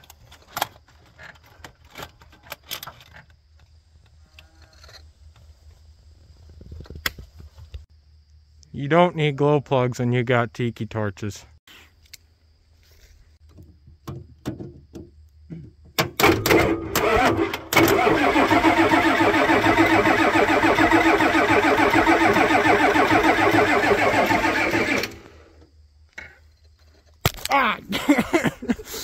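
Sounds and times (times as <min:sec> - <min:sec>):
diesel engine cranking by starter: 0:16.0 - 0:25.6.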